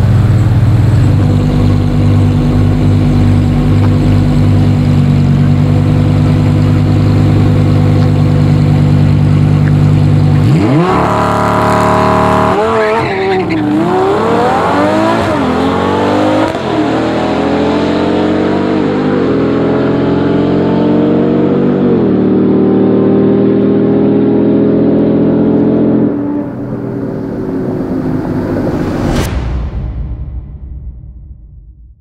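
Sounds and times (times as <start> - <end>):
car engines at full throttle: 0.0 - 30.8.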